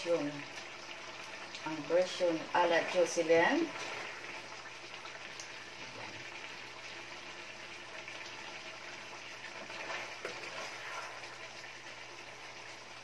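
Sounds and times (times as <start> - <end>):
sauce bubbling and sizzling: 0.0 - 13.0.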